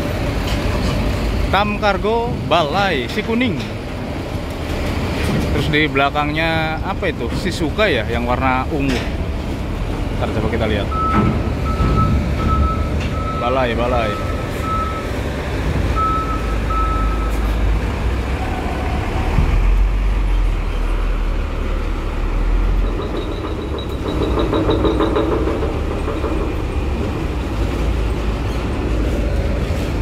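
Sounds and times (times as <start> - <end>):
diesel truck engine rumbling: 0.0 - 30.0
beeping tone: 10.9 - 15.1, 16.0 - 17.4
rattling: 22.8 - 30.0.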